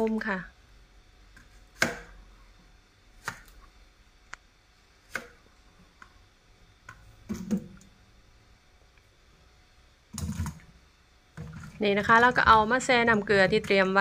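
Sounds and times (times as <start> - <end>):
knife cutting on plastic board: 1.4 - 2.2.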